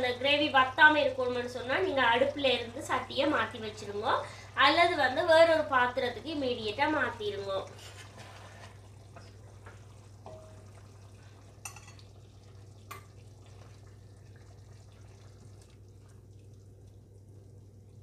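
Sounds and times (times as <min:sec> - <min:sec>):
spoon scraping and clinking pot: 0:07.7 - 0:09.3, 0:11.6 - 0:12.1.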